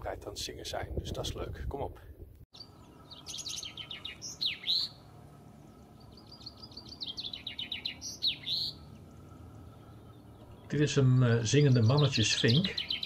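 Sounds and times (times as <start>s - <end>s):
chaffinch singing: 2.6s - 13.0s.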